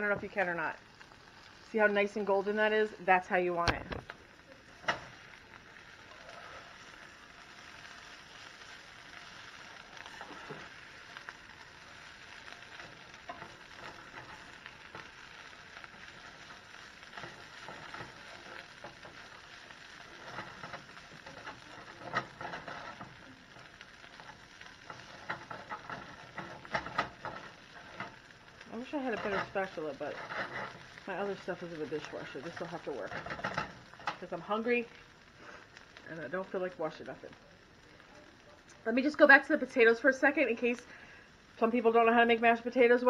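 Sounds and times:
food sizzling in oil: 0:00.0 - 0:43.0
spatula scraping and tapping pan: 0:04.8 - 0:05.3, 0:08.0 - 0:34.3.

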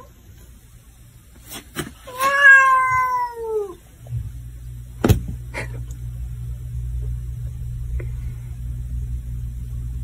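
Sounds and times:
cat meowing: 0:02.1 - 0:03.8
low hum: 0:03.9 - 0:10.0.

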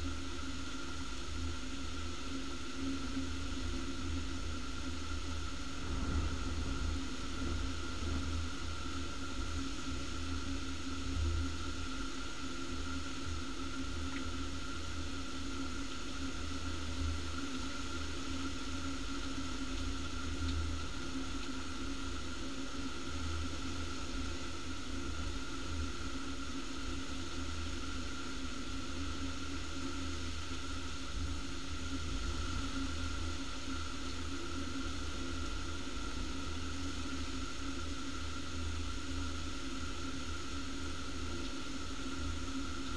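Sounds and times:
heavy rain hissing: 0:05.0 - 0:13.7
wind gusting on microphone: 0:05.7 - 0:09.2.

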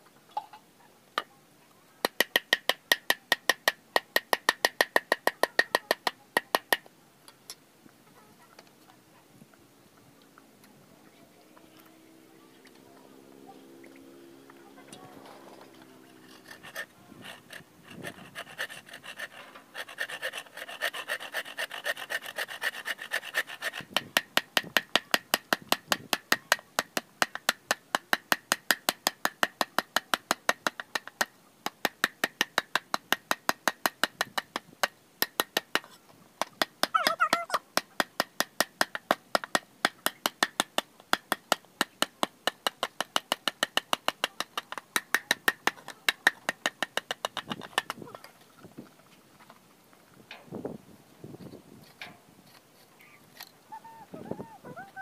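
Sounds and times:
hand saw cutting bamboo: 0:15.2 - 0:26.3
knife scraping bamboo: 0:15.4 - 0:25.1, 0:51.4 - 0:53.5.

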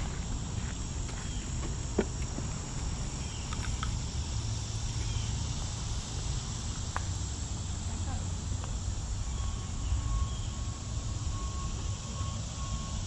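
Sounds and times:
footsteps on dirt trail: 0:00.0 - 0:03.9
insects chirping: 0:00.0 - 0:13.0.

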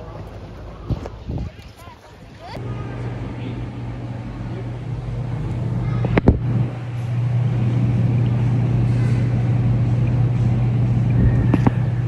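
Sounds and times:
car engine drone: 0:02.6 - 0:12.0.

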